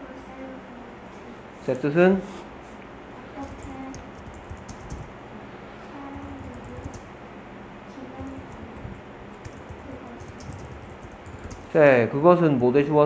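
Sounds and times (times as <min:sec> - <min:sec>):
keyboard key clicks: 0:03.4 - 0:05.1, 0:06.2 - 0:07.1, 0:09.4 - 0:11.7.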